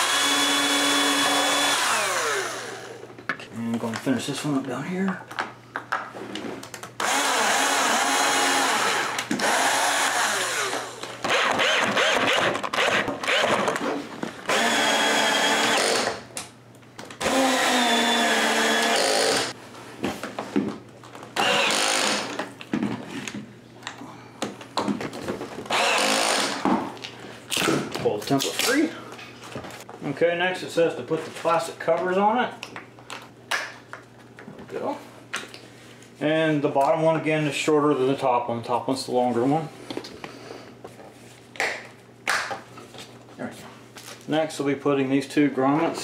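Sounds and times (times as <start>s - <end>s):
cordless drill drilling: 0.0s - 3.0s, 7.0s - 13.8s, 14.5s - 16.2s, 17.2s - 19.6s, 21.4s - 22.4s, 25.7s - 26.6s.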